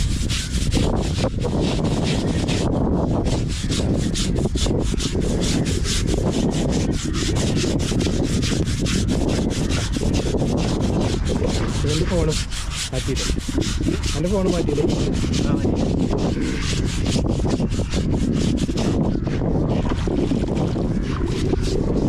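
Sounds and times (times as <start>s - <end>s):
rough scrubbing strokes on hide: 0.0s - 22.0s.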